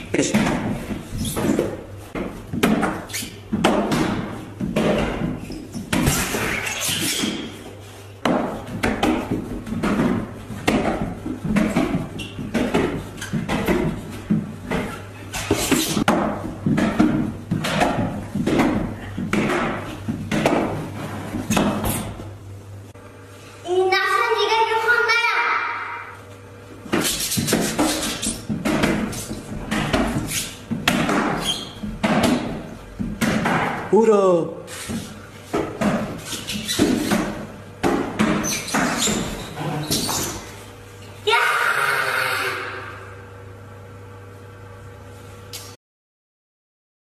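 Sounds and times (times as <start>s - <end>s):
shoes and hands thumping pillar: 0.0s - 22.3s, 26.8s - 34.0s, 34.7s - 40.6s
people talking: 23.7s - 25.9s.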